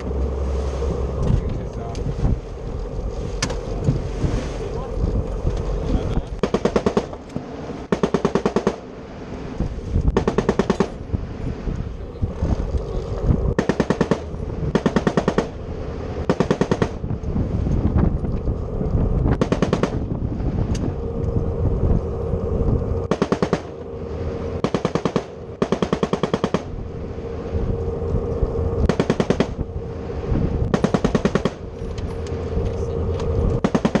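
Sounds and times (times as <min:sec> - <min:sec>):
boat engine low hum: 0:00.0 - 0:34.0
machine gun firing bursts: 0:06.4 - 0:07.1, 0:07.9 - 0:08.8, 0:13.6 - 0:15.5, 0:16.3 - 0:17.0, 0:23.1 - 0:23.7, 0:24.6 - 0:26.7, 0:28.9 - 0:29.6, 0:33.6 - 0:34.0.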